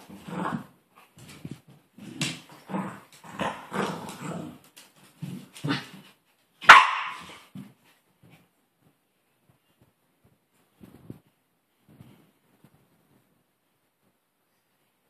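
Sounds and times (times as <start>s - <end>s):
dogs growling: 0.0s - 0.8s, 2.0s - 6.0s
dog barking: 6.6s - 7.4s.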